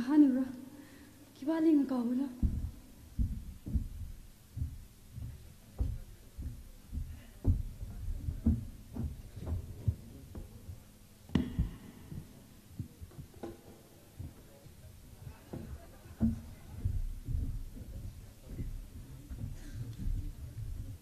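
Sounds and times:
low thuds and bumps: 2.4s - 21.0s
sharp knock: 11.3s - 12.3s.

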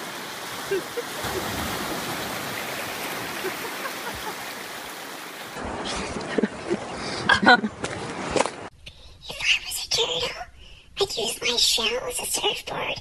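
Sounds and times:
waves splashing in surf: 0.0s - 8.7s.

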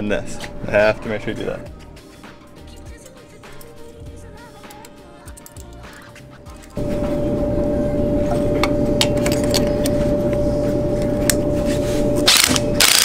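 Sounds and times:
loud machine hum: 6.8s - 13.0s.

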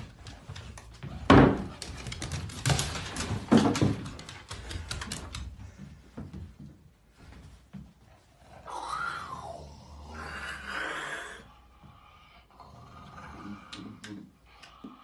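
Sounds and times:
dog claws clicking on wood floor: 0.0s - 5.9s.

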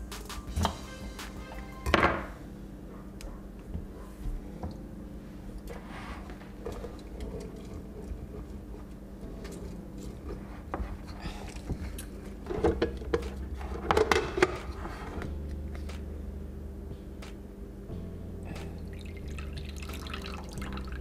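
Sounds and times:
plastic clattering: 11.4s - 14.8s.

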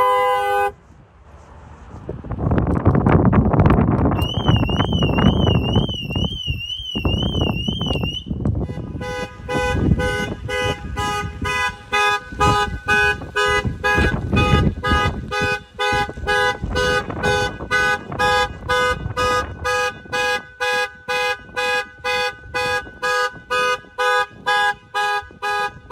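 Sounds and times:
car horn honking: 0.0s - 0.8s, 4.2s - 25.9s
wind on microphone: 1.8s - 25.9s
car alarm siren warbling: 4.2s - 8.3s.

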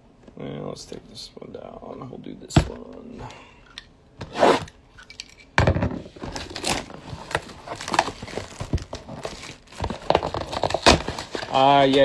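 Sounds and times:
plastic shrink-wrap crinkling: 6.4s - 12.0s.

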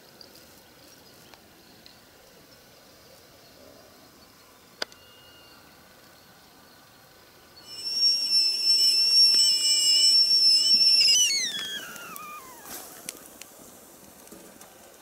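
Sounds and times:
whistling kettle: 7.6s - 12.8s.

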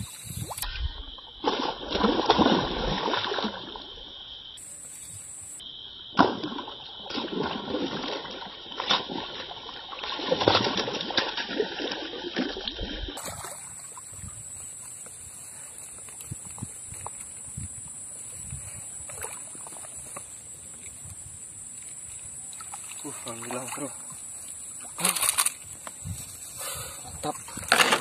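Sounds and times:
sharp water slap: 1.4s - 3.7s, 6.1s - 12.6s, 13.2s - 14.0s
fish splashing in water: 1.4s - 4.2s, 6.1s - 15.0s.

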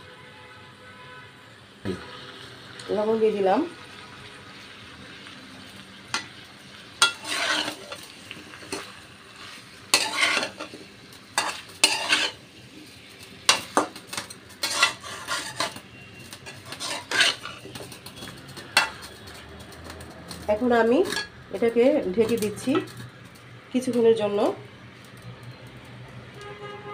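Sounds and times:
vegetables sizzling in oil: 1.9s - 26.1s
metal spatula scraping a pan: 7.0s - 12.4s, 13.0s - 19.4s, 20.8s - 21.4s.

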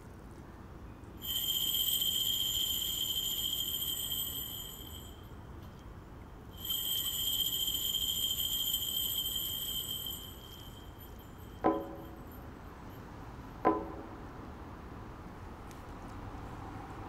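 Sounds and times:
high ringing tones: 1.2s - 5.8s, 6.4s - 14.0s.

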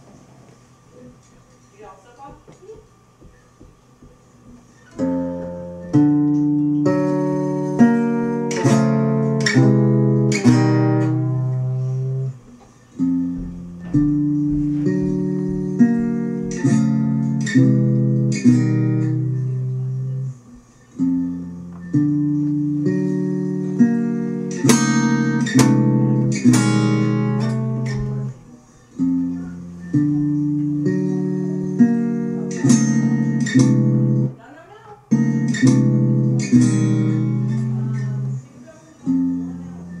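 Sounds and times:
acoustic guitar strumming chords: 3.1s - 40.0s.

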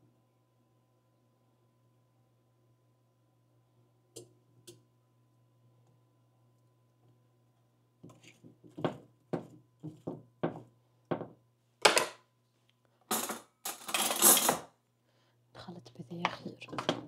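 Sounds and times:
pans and utensils clattering: 13.1s - 14.7s.

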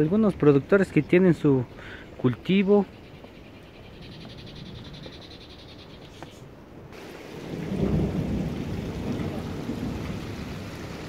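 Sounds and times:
rainwater rushing down channel: 6.9s - 11.0s.

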